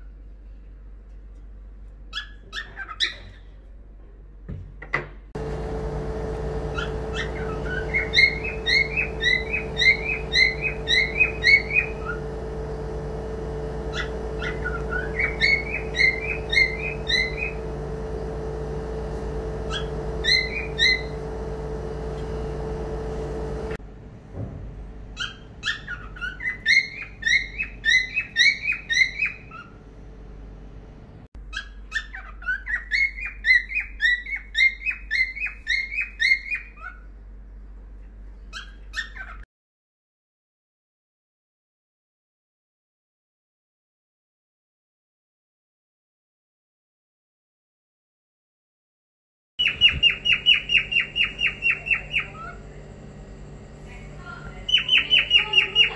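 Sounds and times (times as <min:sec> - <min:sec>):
cockatiel chirping: 0:02.1 - 0:03.5, 0:06.7 - 0:12.2, 0:13.9 - 0:17.6, 0:19.7 - 0:21.2, 0:25.2 - 0:29.8, 0:31.5 - 0:37.0, 0:38.5 - 0:39.4, 0:49.6 - 0:52.6
steady low hum: 0:03.5 - 0:31.5, 0:49.6 - 0:55.9.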